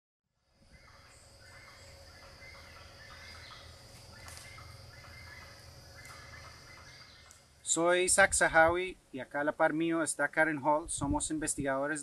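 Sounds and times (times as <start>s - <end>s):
birds calling: 0.6s - 8.6s
low rumble: 0.6s - 8.9s.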